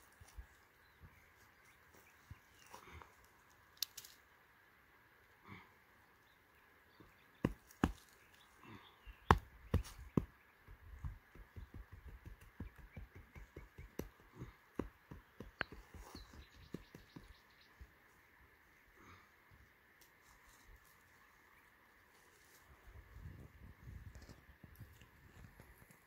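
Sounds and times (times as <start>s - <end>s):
hands patting soil: 7.4s - 18.0s.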